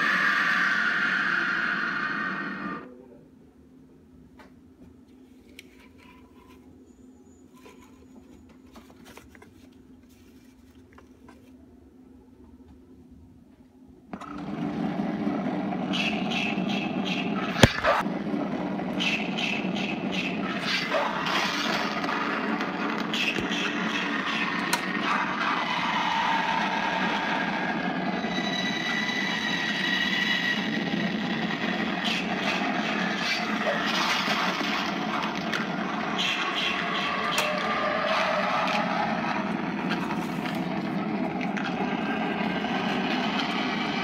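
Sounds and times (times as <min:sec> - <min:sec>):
animated prop motor noise: 0:14.2 - 0:44.0.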